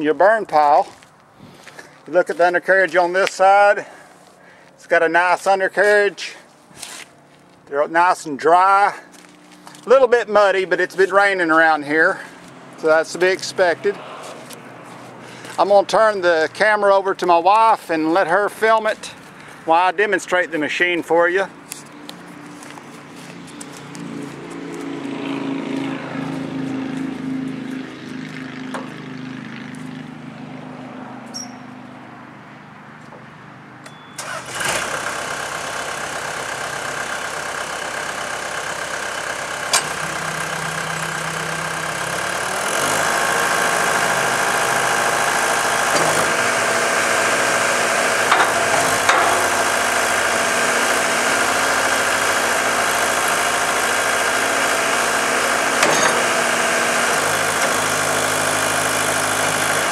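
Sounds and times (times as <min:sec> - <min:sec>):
diesel engine starting and running: 0:00.0 - 0:59.9
sharp clanks: 0:48.2 - 0:50.0, 0:55.8 - 0:56.4.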